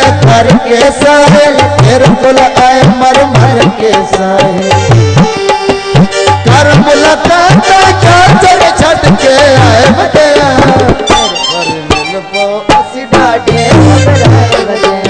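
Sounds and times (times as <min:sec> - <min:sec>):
hand drum quick rhythm: 0:00.0 - 0:15.0
bending melodic instrument line: 0:04.2 - 0:15.0.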